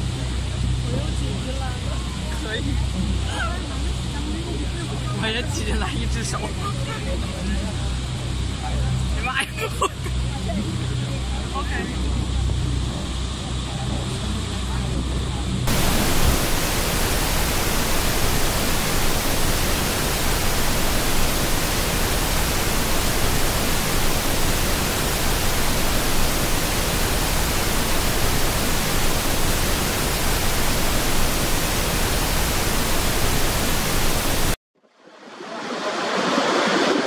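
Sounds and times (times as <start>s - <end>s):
waterfall roaring: 15.7s - 34.6s, 35.3s - 37.0s.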